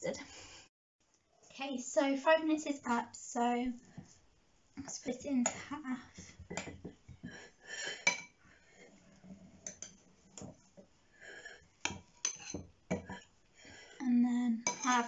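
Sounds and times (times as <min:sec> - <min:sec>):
metal spoon scraping ceramic bowl: 0:06.6 - 0:10.5, 0:11.3 - 0:15.0.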